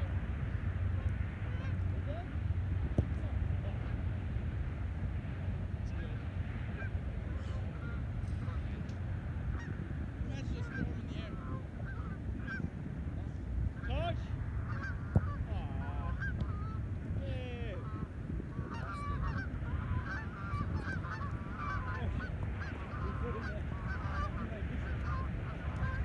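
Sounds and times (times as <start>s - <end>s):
wind rumble on microphone: 0.0s - 26.0s
geese honking: 0.5s - 2.2s, 6.8s - 12.7s, 13.7s - 16.9s, 17.5s - 26.0s.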